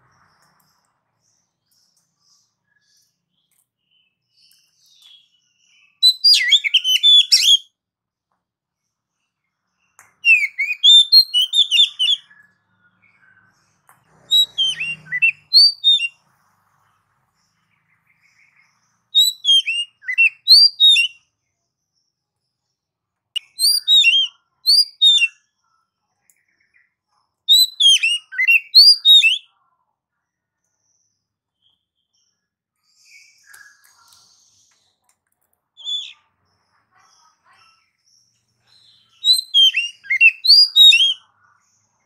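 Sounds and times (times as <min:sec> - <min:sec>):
bird singing whistled notes: 0:02.6 - 0:07.8, 0:10.2 - 0:13.6, 0:14.2 - 0:16.2, 0:18.2 - 0:21.2, 0:23.4 - 0:25.4, 0:27.5 - 0:29.5, 0:35.8 - 0:36.2, 0:38.7 - 0:41.2.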